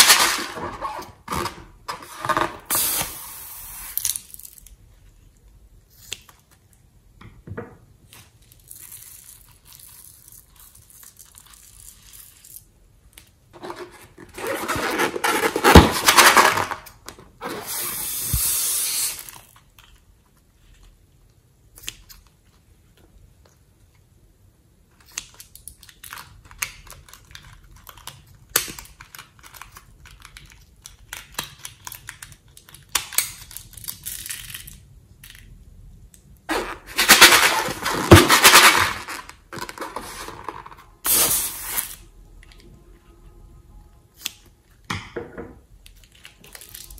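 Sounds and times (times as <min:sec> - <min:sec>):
handling stretched rubber: 0:13.6 - 0:19.4.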